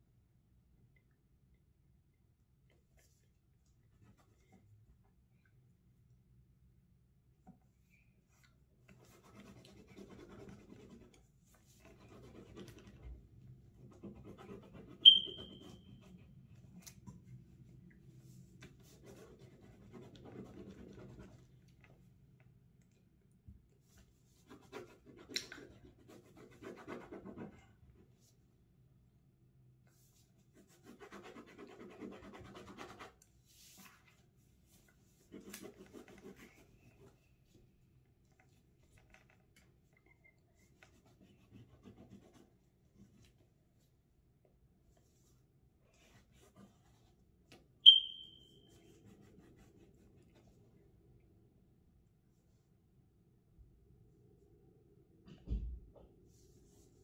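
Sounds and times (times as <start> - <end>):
drawing tool scratching on paper: 9.0 - 11.2, 11.8 - 13.1, 13.7 - 16.3, 24.4 - 27.6, 30.6 - 33.2, 35.3 - 37.1
short sharp high ping: 15.0 - 15.6, 47.9 - 48.5.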